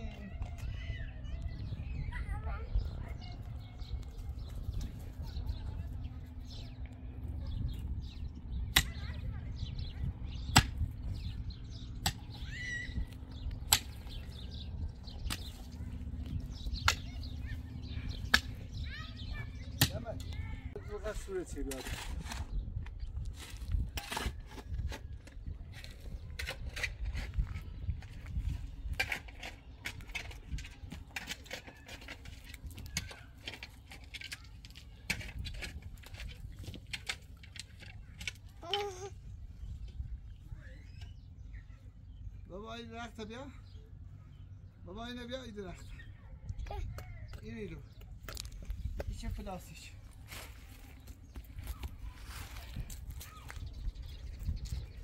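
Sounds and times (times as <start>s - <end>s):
low steady rumble: 0.0s - 20.8s
birds chirping faintly: 0.0s - 55.0s
soil scraping in plastic pot: 21.6s - 22.6s.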